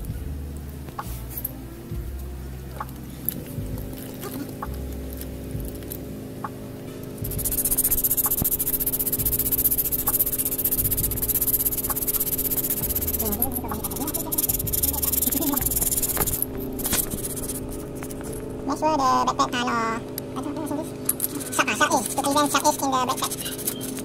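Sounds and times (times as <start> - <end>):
sandpaper rubbing brake pad: 7.2 - 18.3, 21.2 - 24.0.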